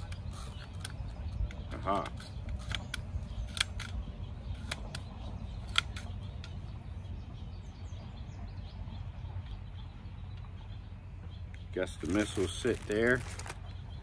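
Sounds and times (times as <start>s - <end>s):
sharp plastic clicks: 0.0s - 6.6s
steady low rumble: 0.0s - 14.0s.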